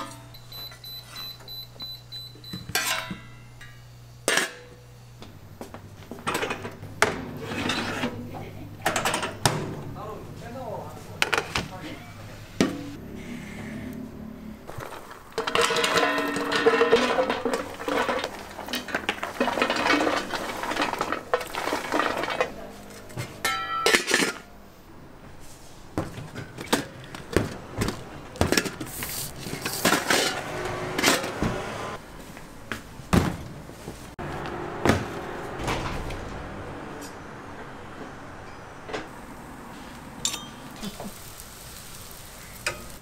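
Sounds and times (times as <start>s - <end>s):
steel pans clanking: 0.0s - 0.3s, 2.6s - 4.8s, 6.2s - 10.1s, 14.7s - 24.6s, 28.3s - 31.5s, 40.2s - 41.2s
nuts rattling into metal pan: 14.7s - 22.6s.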